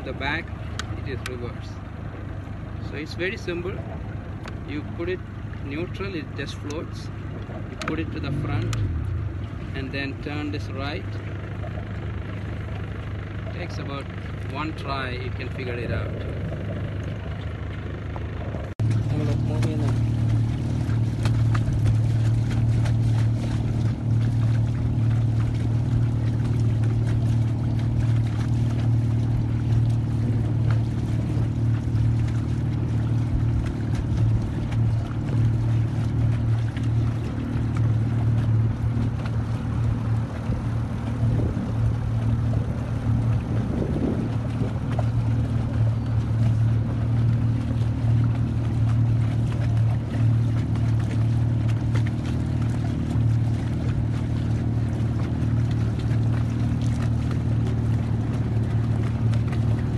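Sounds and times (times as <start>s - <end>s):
outboard motor humming: 0.0s - 59.9s
wind: 0.0s - 59.9s.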